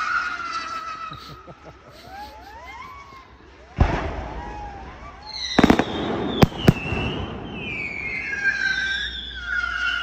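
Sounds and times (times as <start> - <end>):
firework bangs: 3.7 - 10.0
firework whistles: 3.7 - 10.0.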